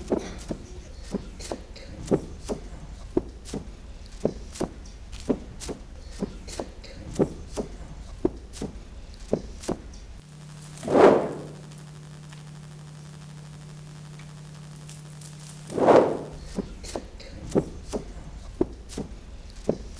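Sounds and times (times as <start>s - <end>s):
steady low hum: 0.0s - 19.9s
loud whoosh: 10.8s - 11.6s, 15.7s - 16.4s.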